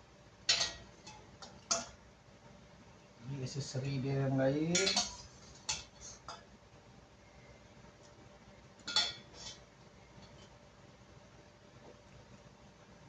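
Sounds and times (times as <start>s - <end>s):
kitchenware clinking: 0.5s - 2.0s, 4.7s - 6.5s, 8.8s - 9.6s.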